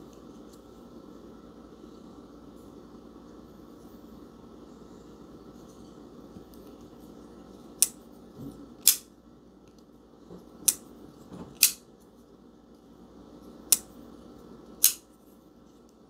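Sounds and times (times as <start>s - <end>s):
folding knife metallic clicks: 8.8s - 9.1s, 14.8s - 15.0s.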